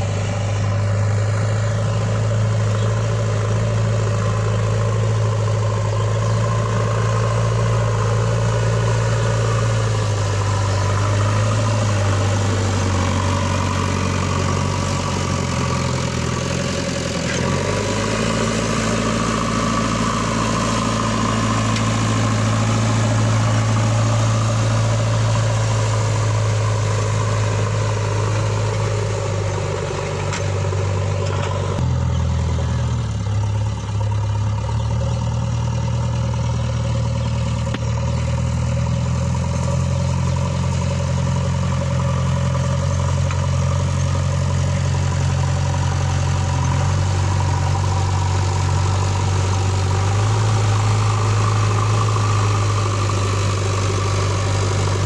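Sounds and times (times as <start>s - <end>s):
loader bucket pushing soil: 0.0s - 35.0s
diesel engine running: 0.0s - 55.0s.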